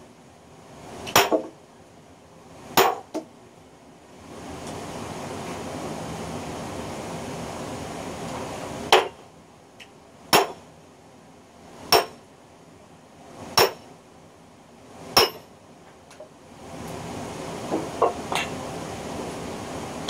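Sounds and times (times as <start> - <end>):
sledgehammer striking steel wedge: 1.1 - 1.5, 2.8 - 3.1, 8.9 - 9.2, 10.3 - 10.6, 11.9 - 12.2, 13.6 - 13.9, 15.2 - 15.5.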